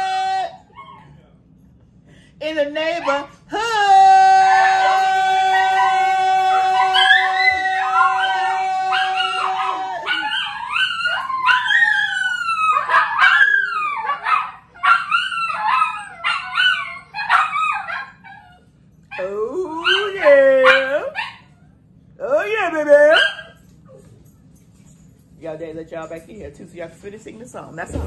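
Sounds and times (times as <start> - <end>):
dog howling: 0.0 - 1.1, 3.0 - 21.4.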